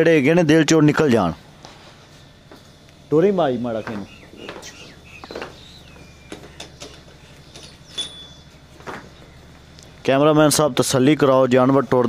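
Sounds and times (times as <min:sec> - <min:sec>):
steady low hum: 0:00.0 - 0:12.0
cow hooves knocking on dirt: 0:03.7 - 0:10.0.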